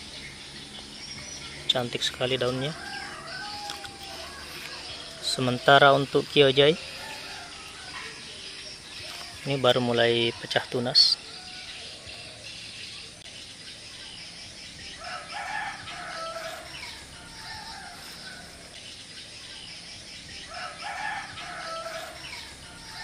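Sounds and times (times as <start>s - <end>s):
rooster crowing: 2.4s - 8.4s, 15.0s - 18.8s, 20.5s - 23.0s.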